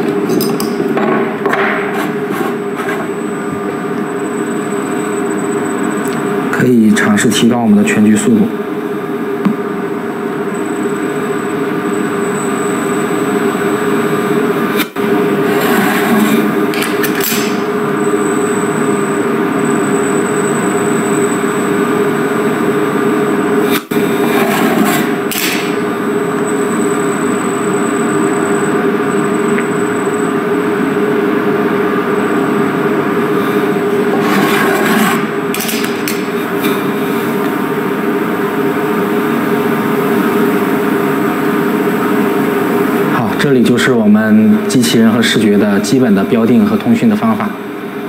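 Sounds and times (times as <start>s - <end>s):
robot arm machine hum: 10.4s - 42.1s.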